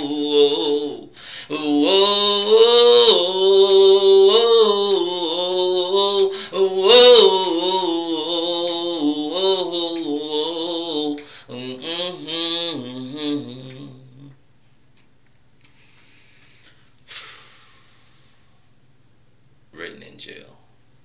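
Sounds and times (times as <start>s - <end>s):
man singing unaccompanied: 0.0s - 14.4s.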